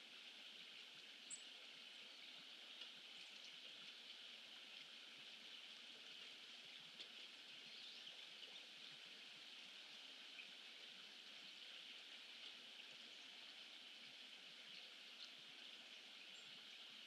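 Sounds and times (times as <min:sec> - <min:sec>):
faint outdoor hiss: 0:00.0 - 0:17.0.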